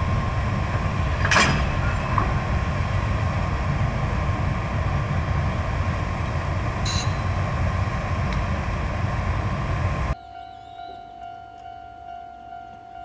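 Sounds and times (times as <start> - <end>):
train wheels rumbling on rails: 0.0 - 10.2
locomotive whine: 0.0 - 13.0.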